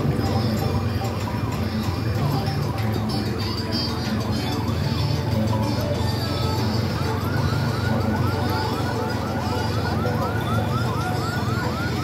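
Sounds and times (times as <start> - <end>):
electronic siren yelping: 5.8 - 12.0.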